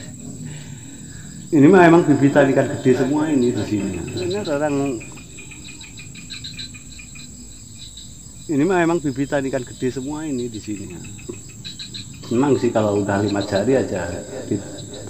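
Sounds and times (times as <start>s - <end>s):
insects chirping: 0.0s - 15.0s
man talking: 1.5s - 5.2s, 8.5s - 11.1s, 12.2s - 15.0s.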